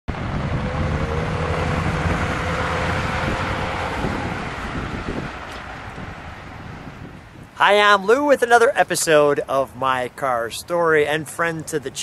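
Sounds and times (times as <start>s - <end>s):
car engine driving by: 0.1s - 7.2s
wind noise on microphone: 0.1s - 8.2s.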